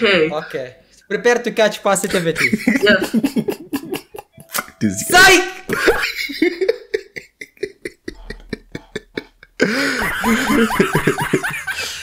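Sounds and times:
man laughing: 0:02.1 - 0:04.5, 0:05.7 - 0:12.0.

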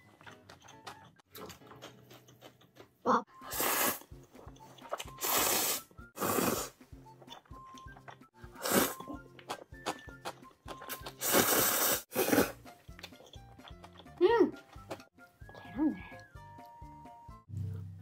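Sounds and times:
quiet background music: 0:00.0 - 0:18.0
chewing clicks: 0:00.2 - 0:03.0
noodles slurped: 0:03.4 - 0:04.1, 0:04.8 - 0:06.8, 0:08.4 - 0:12.7.

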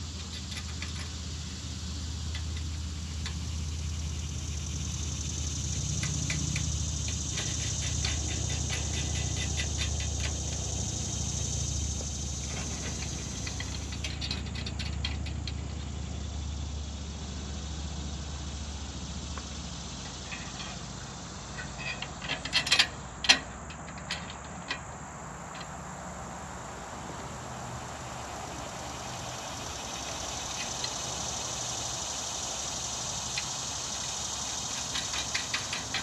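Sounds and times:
steady low hum: 0:00.0 - 0:36.0
small metal parts clicking: 0:12.4 - 0:15.8, 0:21.6 - 0:24.8, 0:34.8 - 0:36.0.

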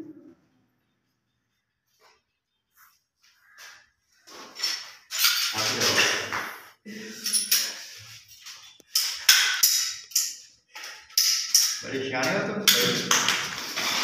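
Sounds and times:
plastic fittings and tools clattering: 0:04.6 - 0:06.2, 0:07.2 - 0:14.0.

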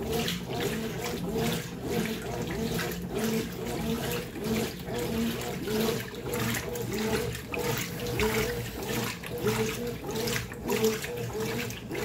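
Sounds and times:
washing machine agitator motor: 0:00.0 - 0:12.0
water and laundry sloshing: 0:00.0 - 0:12.0.

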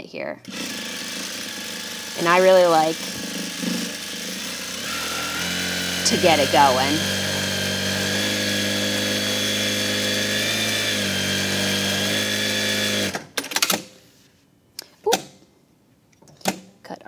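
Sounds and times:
sewing machine running: 0:00.5 - 0:13.2.

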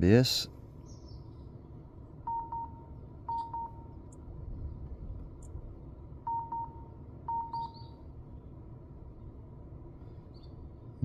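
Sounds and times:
electronic warning beeps: 0:02.2 - 0:04.0, 0:06.2 - 0:08.0.

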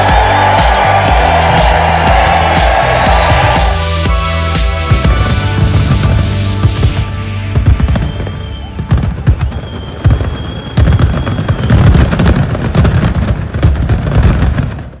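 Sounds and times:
fireworks crackling bangs: 0:04.4 - 0:15.0
fireworks booming: 0:04.7 - 0:15.0
rocket whistle: 0:07.6 - 0:12.0.

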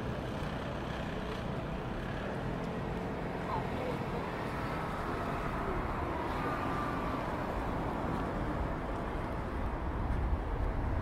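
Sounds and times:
low rumble of road traffic: 0:00.0 - 0:11.0.

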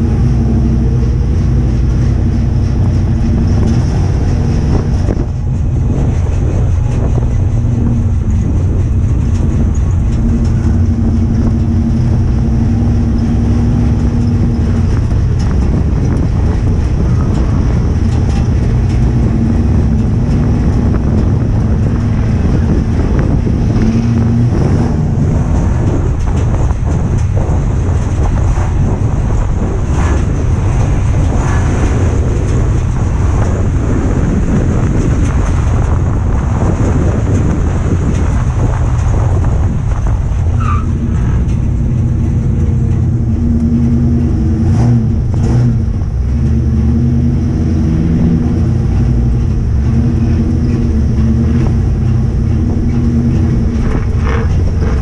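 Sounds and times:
low rumble and rattle: 0:00.0 - 0:55.0
race car engine running hard: 0:00.0 - 0:55.0.

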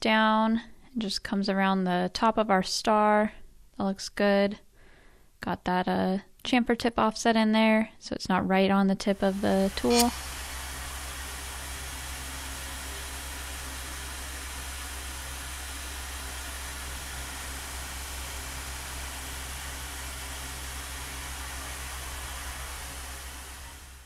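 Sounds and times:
milling machine cutting metal: 0:09.2 - 0:24.0.

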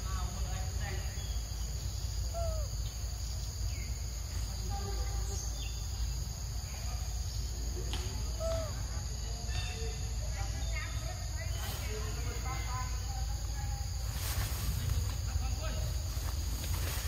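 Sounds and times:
insects droning: 0:00.0 - 0:17.0
falling bird-like calls: 0:02.2 - 0:03.0, 0:08.2 - 0:09.0.

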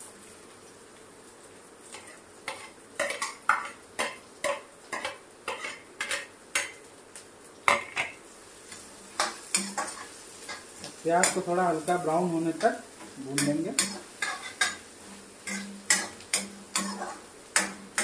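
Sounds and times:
faint oil sizzle: 0:00.0 - 0:18.0
metal spatula scraping a pan: 0:01.9 - 0:06.7, 0:08.7 - 0:10.6, 0:13.4 - 0:18.0.

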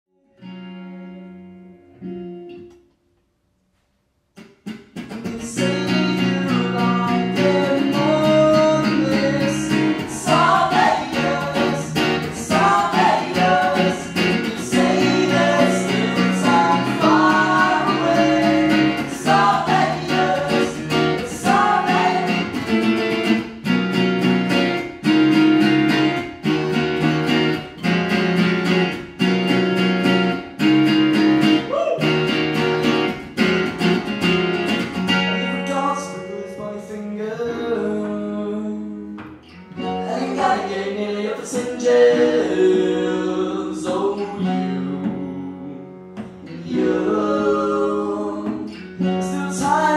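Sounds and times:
acoustic guitar: 0:00.1 - 0:49.9
electric guitar: 0:00.2 - 0:03.0, 0:04.4 - 0:49.9
person singing: 0:05.2 - 0:23.3, 0:31.6 - 0:32.1, 0:39.8 - 0:49.9.

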